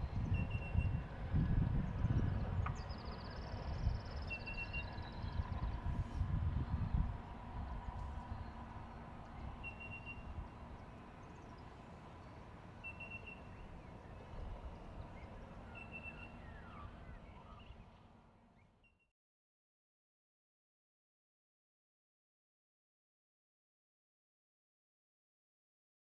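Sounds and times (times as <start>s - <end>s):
diesel locomotive engines rumbling: 0.0s - 18.4s
bird chirping: 2.7s - 5.6s, 9.6s - 14.2s, 14.9s - 18.0s.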